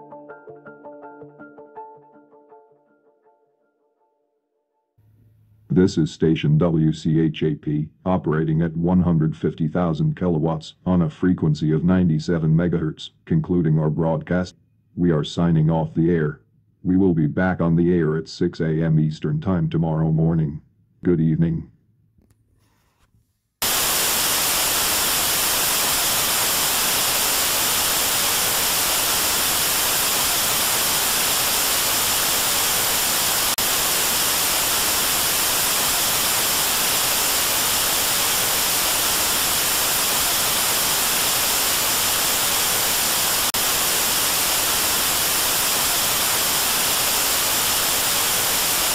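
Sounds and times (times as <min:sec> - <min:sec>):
television static hiss: 0:23.6 - 0:48.9.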